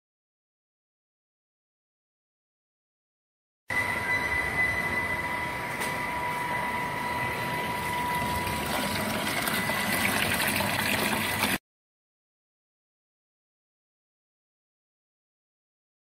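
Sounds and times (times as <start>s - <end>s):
pump high whine: 3.7s - 11.6s
slurry rushing through pipes: 7.6s - 11.6s.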